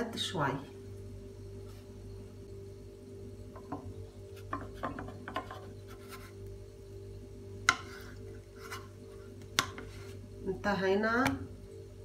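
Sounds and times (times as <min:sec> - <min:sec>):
spatula scraping frying pan: 0:07.7 - 0:10.2.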